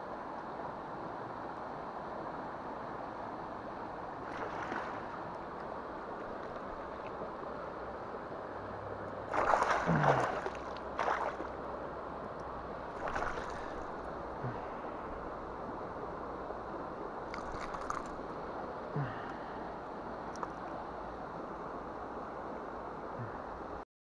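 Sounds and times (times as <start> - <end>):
river rushing: 0.0 - 23.8
fish splashing in water: 9.3 - 11.6, 12.9 - 14.8, 17.3 - 18.2.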